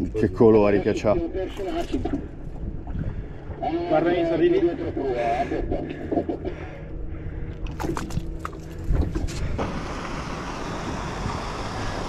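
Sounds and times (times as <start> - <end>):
boat engine humming: 0.0 - 12.0
wind and water rushing: 7.6 - 12.0.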